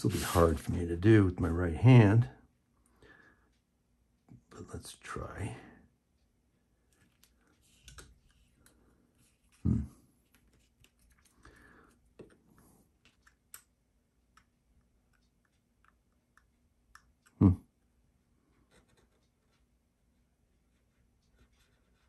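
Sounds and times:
paper handled: 0.0s - 0.8s.

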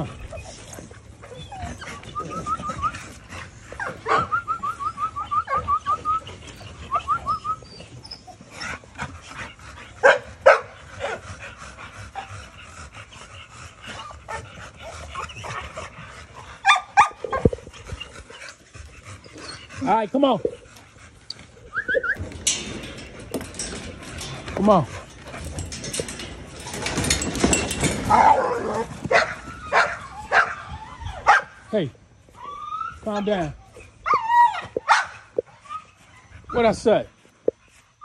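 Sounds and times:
dog whining: 0.0s - 8.8s, 21.6s - 31.4s, 32.3s - 36.5s
dog barking: 10.0s - 10.7s, 34.8s - 35.2s.

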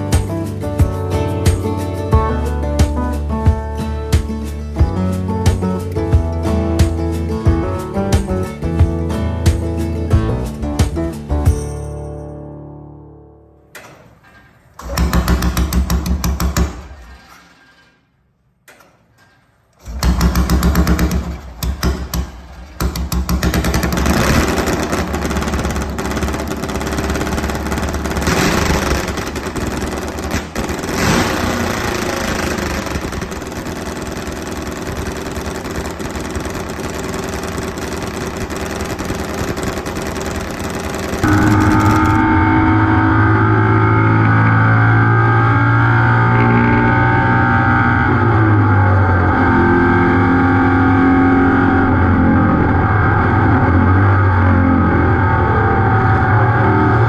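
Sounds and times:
engine starting and idling: 13.7s - 18.0s, 18.8s - 42.3s
engine throttle blips: 19.8s - 57.0s
engine at high revs: 23.4s - 37.2s, 37.8s - 57.0s.

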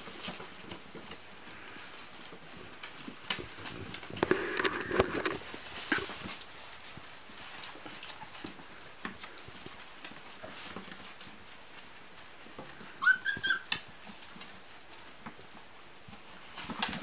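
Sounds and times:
paws scratching on bedding: 0.0s - 17.0s
puppy yelping: 13.0s - 13.8s.

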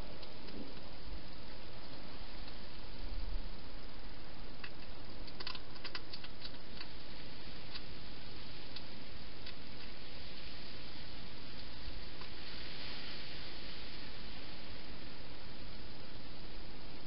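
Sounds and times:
steady hiss: 0.0s - 17.0s
hedgehog chewing clicks: 4.6s - 6.9s.

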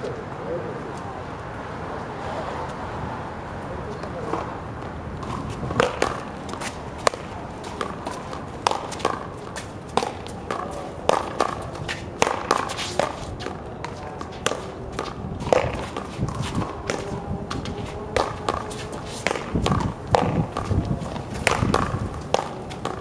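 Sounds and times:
sneakers scuffing on concrete: 4.0s - 23.0s
ball hitting concrete wall: 5.2s - 23.0s
paddles smacking ball: 5.2s - 23.0s.

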